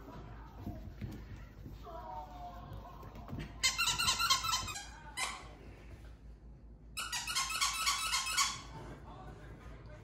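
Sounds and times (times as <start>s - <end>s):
squeaky toy squeaking: 3.6s - 5.5s, 7.0s - 8.8s.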